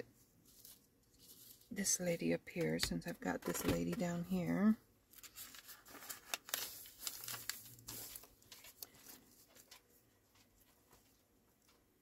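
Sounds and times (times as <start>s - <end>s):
paper rustling and crinkling: 0.4s - 1.8s, 5.1s - 11.8s.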